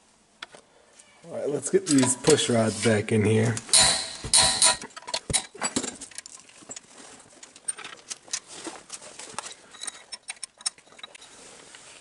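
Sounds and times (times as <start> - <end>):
metal rods clicking and tapping: 1.9 - 2.4, 3.5 - 6.8, 9.4 - 11.2.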